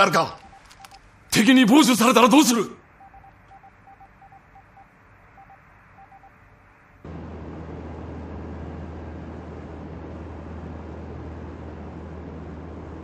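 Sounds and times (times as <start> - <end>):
morse code beeps: 0.0 - 1.0, 3.0 - 6.4
aircraft engines droning: 0.0 - 13.0.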